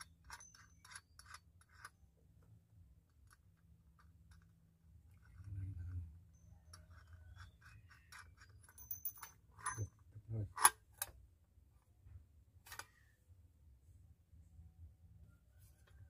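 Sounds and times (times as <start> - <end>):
metal parts clinking: 7.4 - 10.0.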